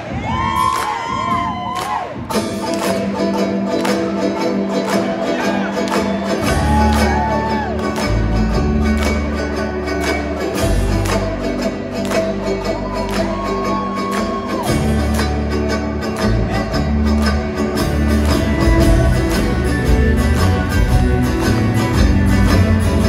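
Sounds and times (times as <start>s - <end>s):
crowd cheering: 0.0s - 23.0s
acoustic guitar: 2.2s - 23.0s
banjo: 2.2s - 23.0s
deep bass line: 6.4s - 23.0s.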